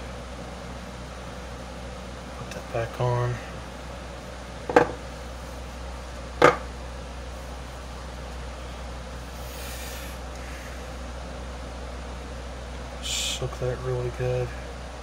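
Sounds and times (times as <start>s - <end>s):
steady low hum: 0.0s - 15.0s
fan motor parts clacking: 4.6s - 5.1s, 6.4s - 6.7s.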